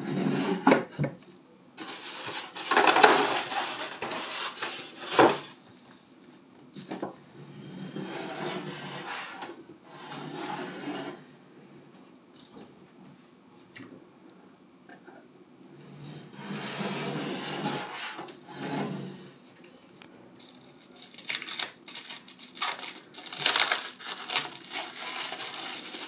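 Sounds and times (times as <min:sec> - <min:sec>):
plastic wrap rustling and scraping: 0:01.8 - 0:05.6, 0:16.3 - 0:19.0, 0:19.8 - 0:26.0.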